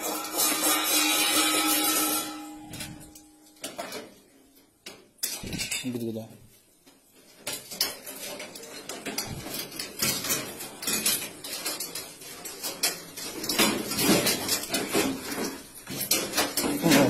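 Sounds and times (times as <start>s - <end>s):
steel dishes clattering in rack: 0.0s - 4.1s, 7.5s - 17.0s.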